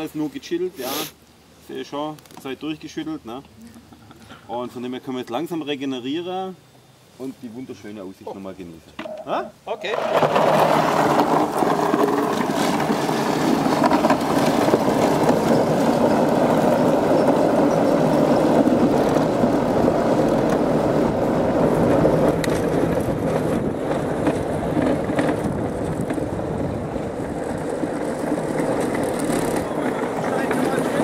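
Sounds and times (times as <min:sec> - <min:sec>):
tracks rolling over gravel: 0:09.8 - 0:31.0.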